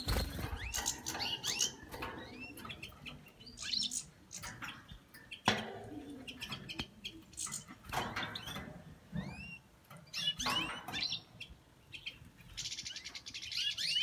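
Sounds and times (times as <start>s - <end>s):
finches twittering: 0.0s - 5.4s.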